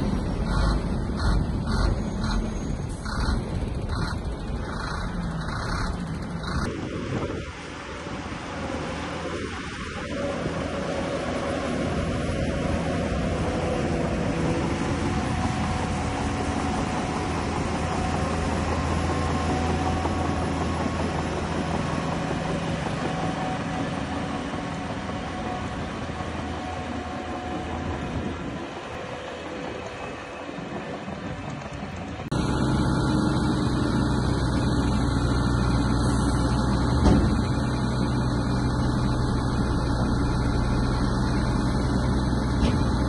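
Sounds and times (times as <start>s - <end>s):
heavy diesel machinery running: 0.0s - 43.0s.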